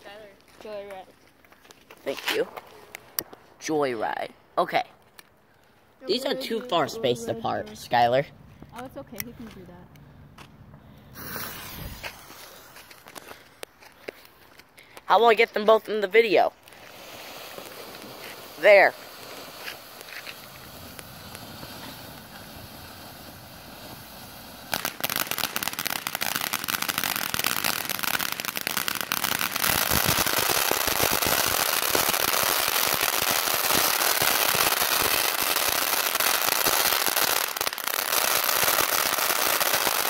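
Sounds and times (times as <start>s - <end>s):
dense crackling of fireworks: 2.0s - 4.4s, 10.8s - 40.0s
fireworks hissing: 10.9s - 13.8s, 16.4s - 40.0s.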